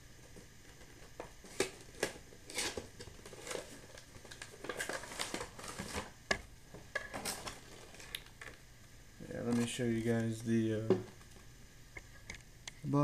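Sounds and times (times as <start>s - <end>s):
packaging crinkling and rustling: 0.7s - 6.2s, 6.8s - 8.6s.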